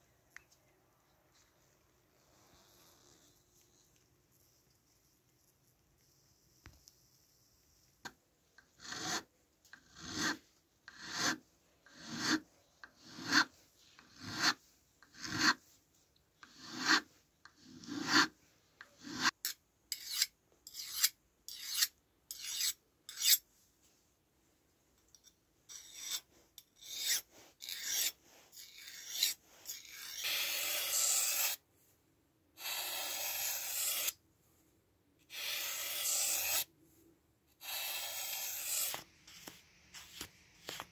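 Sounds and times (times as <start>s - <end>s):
knife blade scraping on sharpener: 9.9s - 11.4s, 16.4s - 17.0s, 17.8s - 18.3s, 19.0s - 23.4s, 25.2s - 31.6s, 32.6s - 34.2s, 35.3s - 36.7s, 37.6s - 39.0s.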